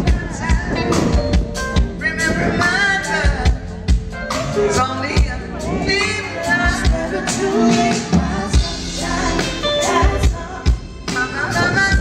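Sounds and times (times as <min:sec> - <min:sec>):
live band playing: 0:00.0 - 0:12.0
woman singing: 0:05.0 - 0:12.0.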